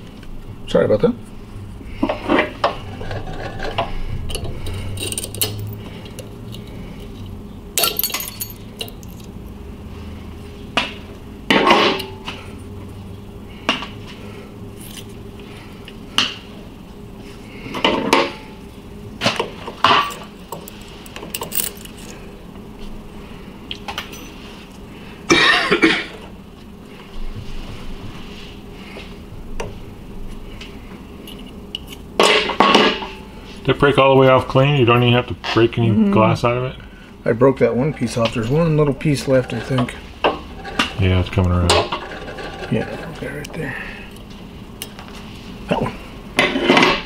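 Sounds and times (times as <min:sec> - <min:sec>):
glass and metal clinking: 0:07.8 - 0:09.3.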